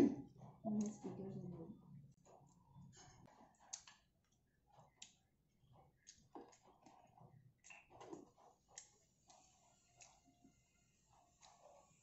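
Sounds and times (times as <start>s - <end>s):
person chewing: 2.2s - 10.5s.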